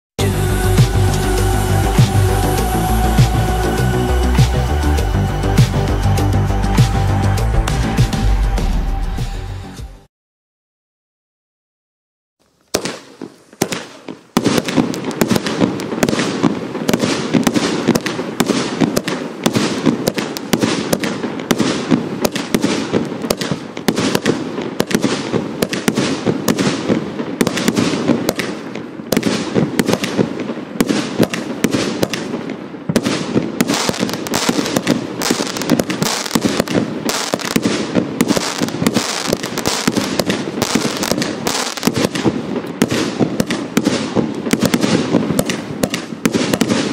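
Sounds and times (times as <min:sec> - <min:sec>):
firework cake shots: 0:12.7 - 0:46.9.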